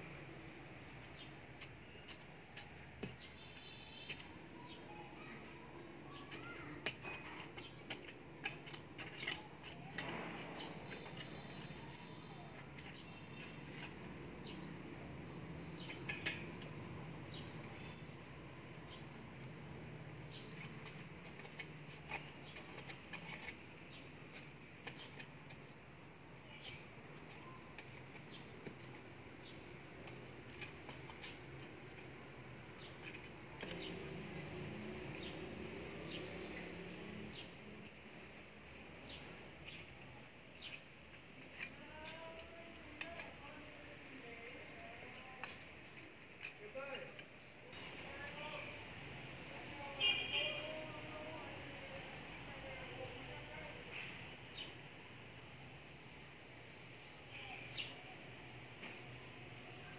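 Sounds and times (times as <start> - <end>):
hand tool scraping soil: 6.3 - 14.6, 20.3 - 25.8, 26.6 - 37.9.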